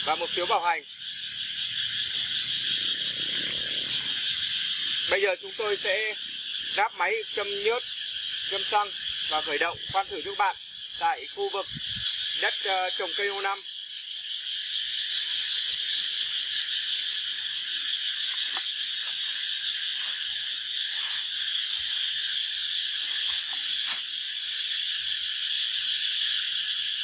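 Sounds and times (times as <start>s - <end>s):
insect chorus shrilling: 0.0s - 27.0s.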